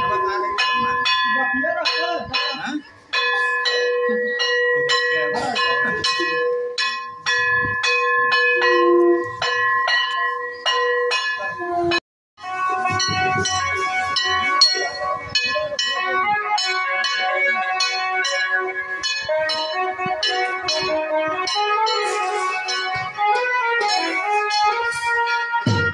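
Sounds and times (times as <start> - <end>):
metal struck ringing: 19.0 - 25.9.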